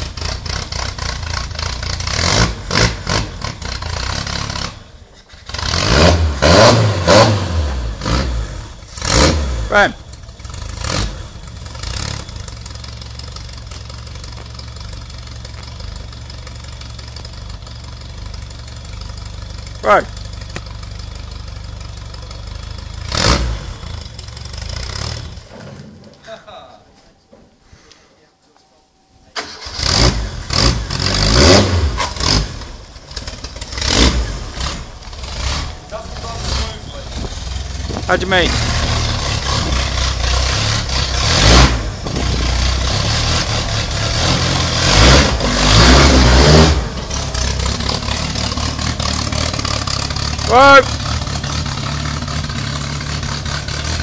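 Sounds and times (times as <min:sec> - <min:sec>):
loud short engine burst: 0:00.0 - 0:12.8, 0:22.8 - 0:25.8, 0:29.3 - 0:54.0
car engine idling: 0:00.0 - 0:25.6, 0:29.3 - 0:54.0.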